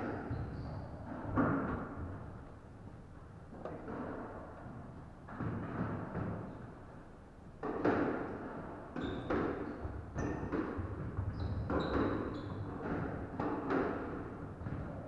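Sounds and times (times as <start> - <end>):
squash ball hits: 0.0 - 2.2, 5.3 - 6.5, 7.6 - 15.0.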